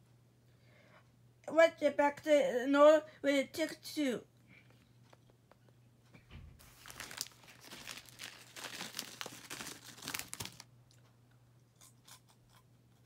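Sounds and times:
crinkling and rustling: 0:04.7 - 0:11.1.

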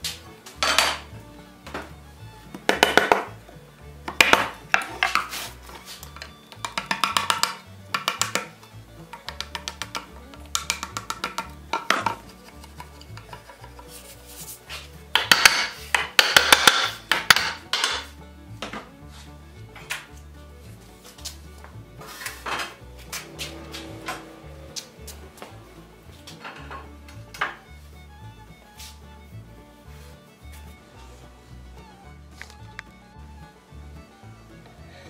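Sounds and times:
background music: 0:00.0 - 0:35.0
mallet knocking wood chisel: 0:02.5 - 0:14.0, 0:15.1 - 0:18.9
hand tool scraping wood: 0:02.6 - 0:20.1, 0:20.7 - 0:27.9, 0:28.6 - 0:29.1.

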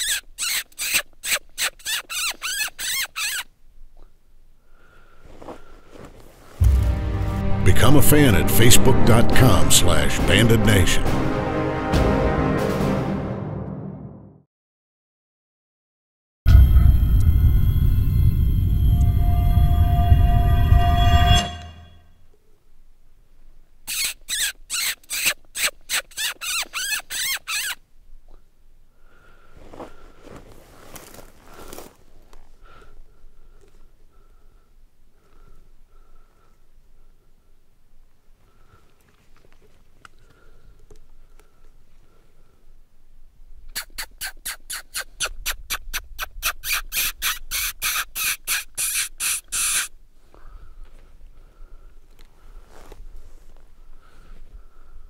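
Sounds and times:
predator call squeals: 0:00.0 - 0:03.5, 0:23.9 - 0:27.8, 0:43.8 - 0:49.9.

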